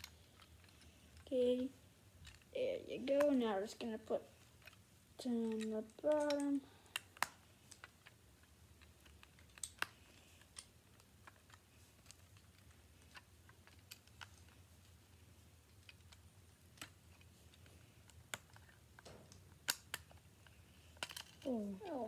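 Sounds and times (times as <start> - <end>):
plastic bricks clicking: 5.4 - 14.6.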